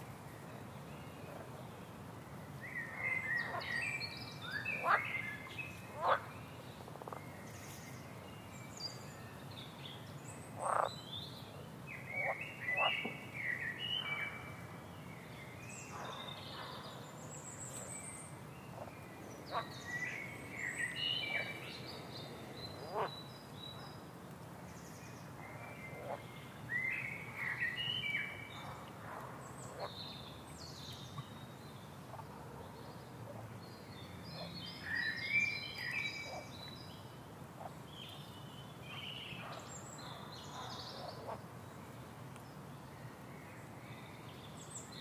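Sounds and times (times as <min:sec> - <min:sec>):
steady low background noise: 0:00.0 - 0:45.0
frog calls: 0:10.6 - 0:10.9.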